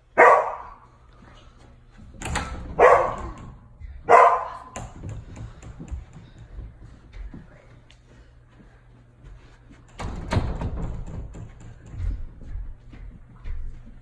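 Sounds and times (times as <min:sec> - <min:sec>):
dog barking: 0:00.2 - 0:00.9, 0:02.8 - 0:03.4, 0:04.1 - 0:04.8.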